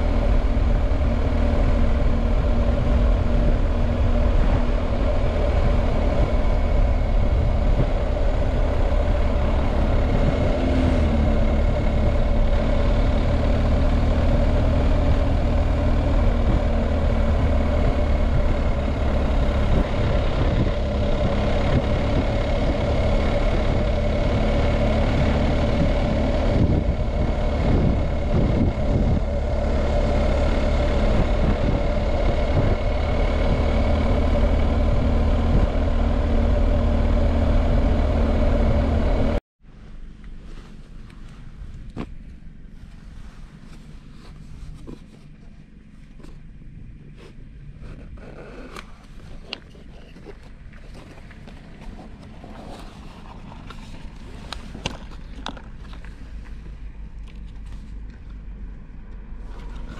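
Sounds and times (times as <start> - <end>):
motorcycle engine running: 0.0 - 39.4
wind and road noise: 0.0 - 59.9.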